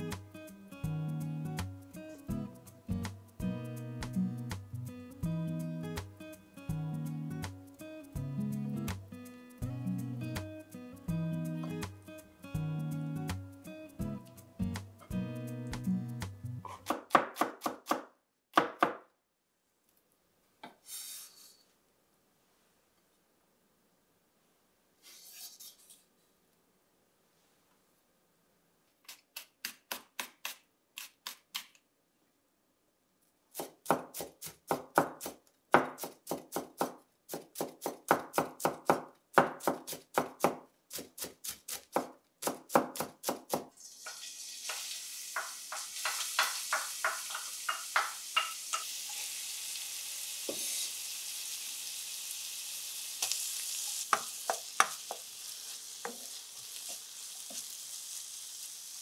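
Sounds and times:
knife chopping on cutting board: 16.7 - 19.0, 33.6 - 43.7
food sizzling in frying pan: 43.8 - 59.0.

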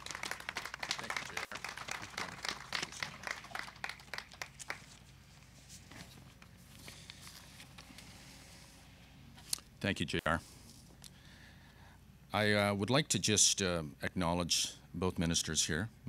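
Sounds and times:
audience clapping: 0.0 - 5.1.

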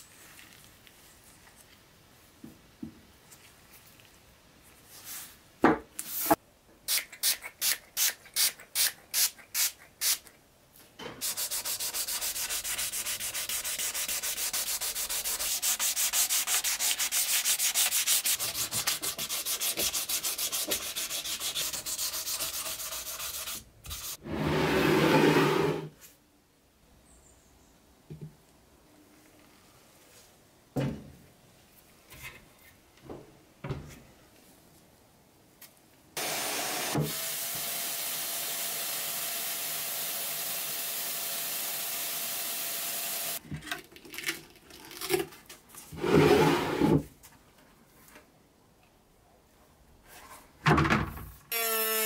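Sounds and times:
sandpaper rubbing on resin: 11.2 - 24.2.

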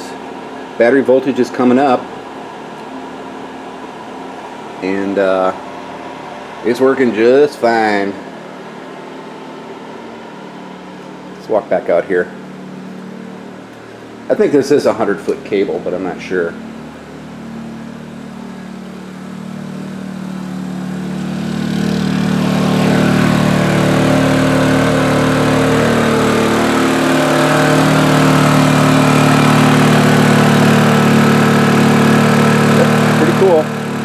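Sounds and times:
generator engine running: 0.0 - 34.0.

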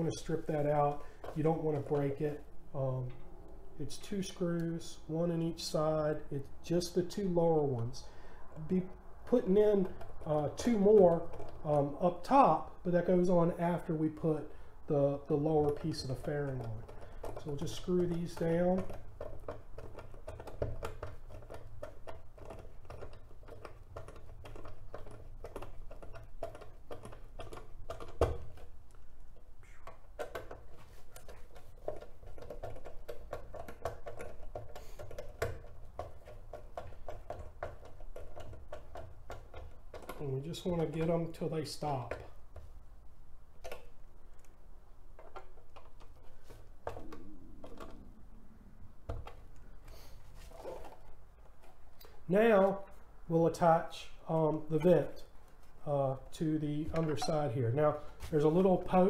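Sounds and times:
steady low hum: 35.7 - 59.0.

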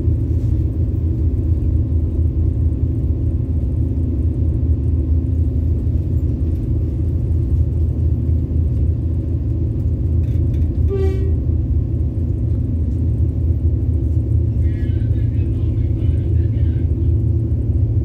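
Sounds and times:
locomotive engine rumble: 0.0 - 18.0
locomotive horn toot: 10.7 - 11.5.

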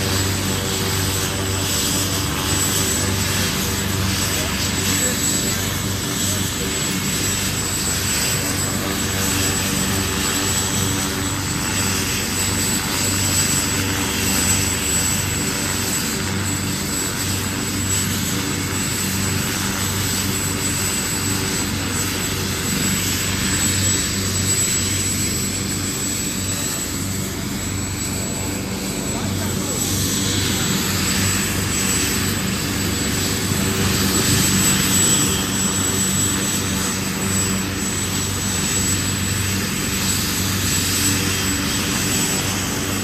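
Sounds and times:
helicopter drone: 0.0 - 43.0.

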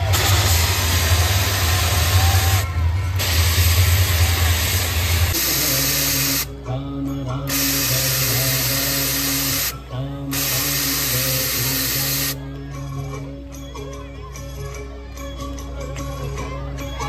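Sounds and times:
stage smoke jets hissing: 0.0 - 6.5, 7.5 - 12.4
music with long held notes: 0.0 - 17.0.

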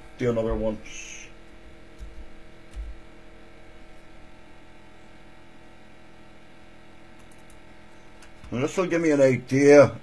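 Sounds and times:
electrical mains hum: 0.0 - 10.0
soft low thumps: 2.0 - 3.1.

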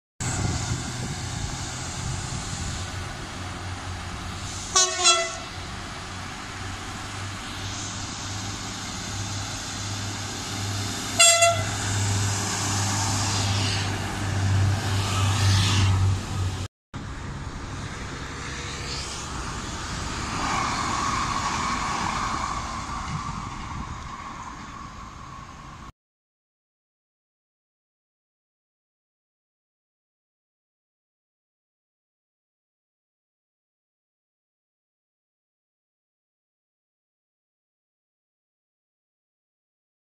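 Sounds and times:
train engine hum and wheel noise: 0.2 - 25.9
train horn blasts: 4.6 - 5.6, 11.1 - 11.8.

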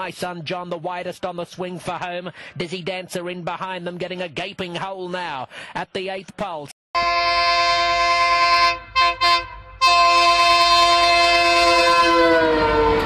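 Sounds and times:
locomotive horn blasts: 7.0 - 13.0.

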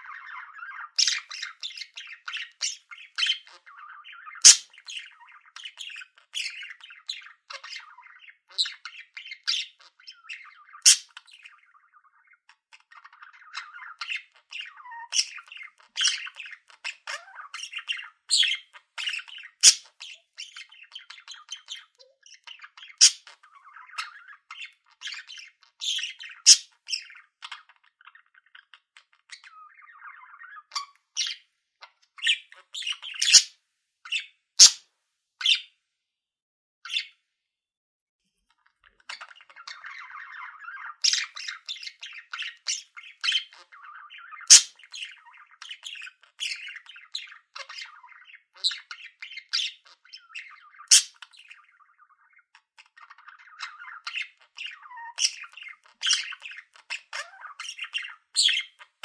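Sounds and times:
budgerigar chirping and warbling: 0.0 - 33.5, 34.1 - 34.8, 35.4 - 35.7, 36.9 - 37.2, 38.5 - 59.0
budgerigar squawks: 2.6 - 4.8, 10.8 - 11.2, 19.6 - 20.0, 23.0 - 23.3, 26.0 - 26.7, 32.3 - 33.5, 34.6 - 34.8, 44.4 - 44.8, 50.8 - 51.2.

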